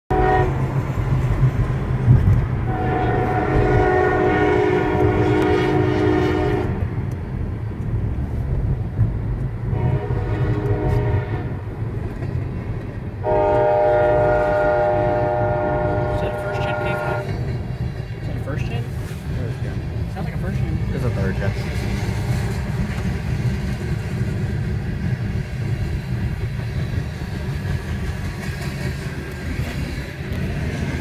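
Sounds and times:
locomotive air horn blasts: 0.1s - 0.6s, 2.7s - 6.8s, 9.7s - 11.5s, 13.2s - 17.4s
road and engine rumble: 0.1s - 31.0s.

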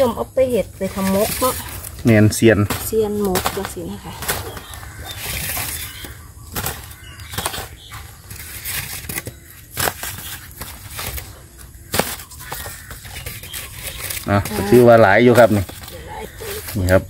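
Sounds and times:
plastic sack rustling: 0.7s - 17.0s
bamboo shoots knocking together: 1.0s - 17.0s.

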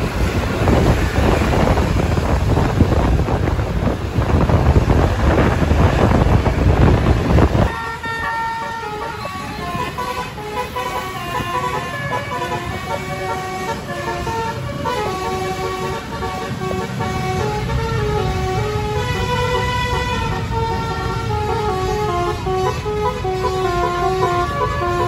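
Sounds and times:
engine and road noise: 0.0s - 25.0s
musical air horn playing tune: 7.5s - 25.0s.

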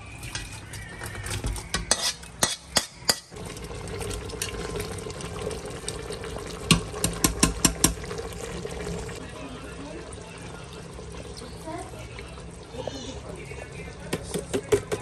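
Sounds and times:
metal spoon stirring in a pot: 0.0s - 3.4s
curry sizzling: 0.0s - 15.0s
metal spatula scraping a wok: 0.6s - 3.2s.

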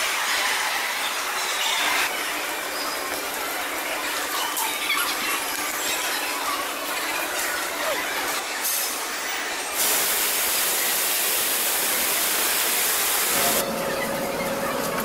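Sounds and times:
fountain water splashing: 9.8s - 13.7s.

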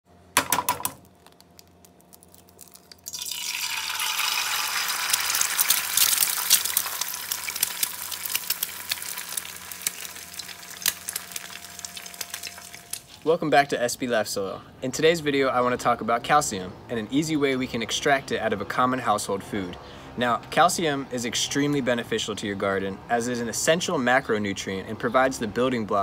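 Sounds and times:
faint steady hum: 0.1s - 18.7s
egg sizzling in hot oil: 1.2s - 13.3s.

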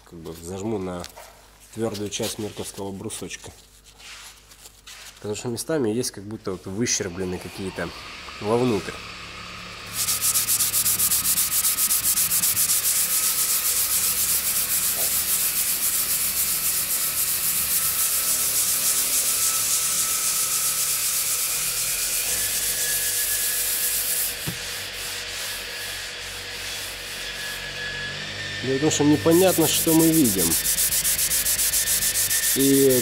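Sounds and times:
sandpaper rubbing on carbon fibre: 3.6s - 5.2s, 9.9s - 27.6s, 28.9s - 33.0s.

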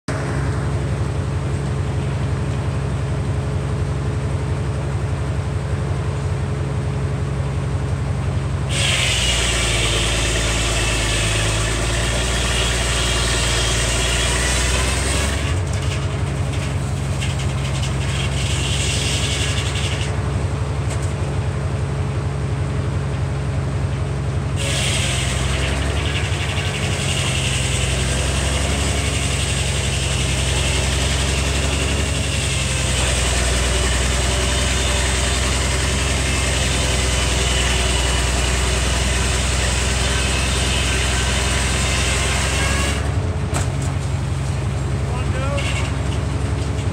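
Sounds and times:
engine running steadily: 0.1s - 46.9s
circular saw blade cutting wood: 8.7s - 20.2s, 24.6s - 43.7s, 44.4s - 46.9s.

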